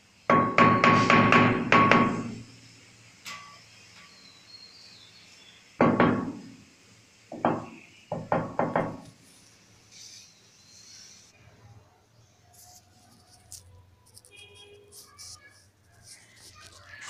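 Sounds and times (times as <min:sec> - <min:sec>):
mallet knocking on ceramic tiles: 0:00.3 - 0:02.4.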